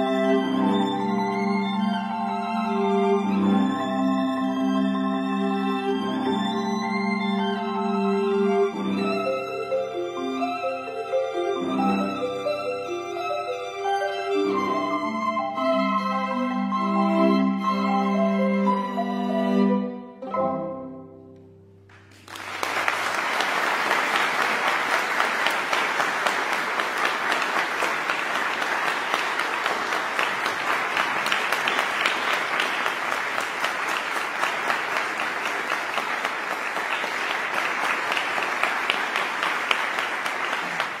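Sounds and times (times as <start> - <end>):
audience applauding: 21.9 - 41.0.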